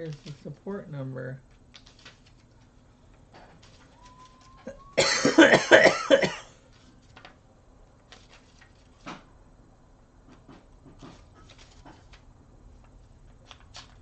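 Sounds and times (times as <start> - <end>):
paper pages rustling: 0.0 - 0.6, 1.4 - 4.9, 6.6 - 9.3, 10.3 - 14.0
man coughing hard: 5.0 - 6.6.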